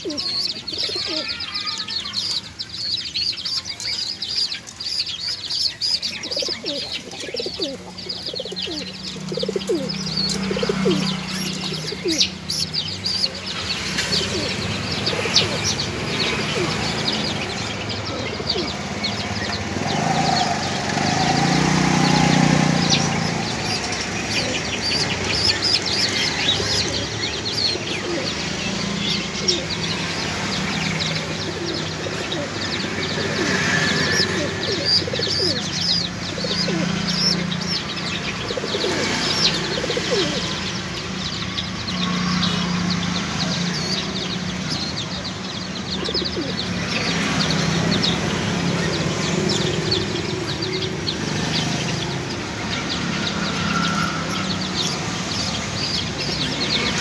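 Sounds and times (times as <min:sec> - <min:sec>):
pigeons cooing: 0:00.0 - 0:01.5, 0:06.0 - 0:41.1, 0:45.8 - 0:52.4
small birds twittering: 0:00.0 - 0:57.0.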